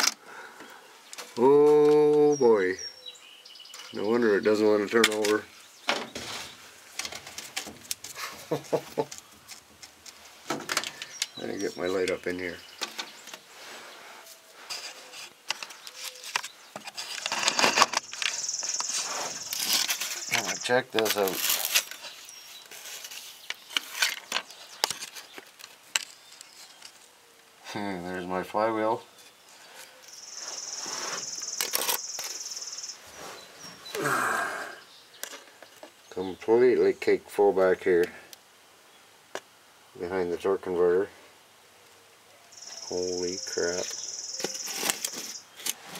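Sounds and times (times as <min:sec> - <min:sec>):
rustling and scraping: 0:03.7 - 0:27.1, 0:29.1 - 0:33.9, 0:42.8 - 0:45.9
buzzy insect trill: 0:30.1 - 0:33.0, 0:42.5 - 0:45.4.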